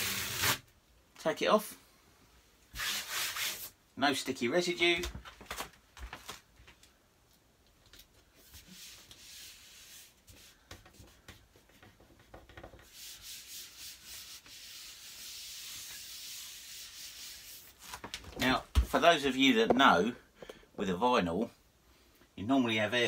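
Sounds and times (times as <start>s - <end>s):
poster sheet tapping and rustling: 5.0s - 6.8s, 17.8s - 19.0s
hand brushing poster on door: 8.4s - 18.0s.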